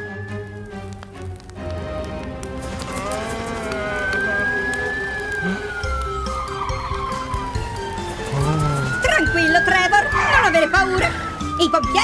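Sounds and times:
background music: 0.0s - 12.0s
cartoon siren wailing: 3.0s - 12.0s.

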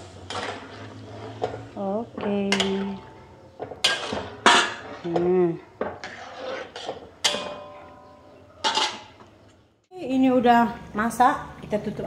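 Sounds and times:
metal spatula scraping a wok: 0.0s - 9.2s
wok ringing: 7.2s - 9.1s.

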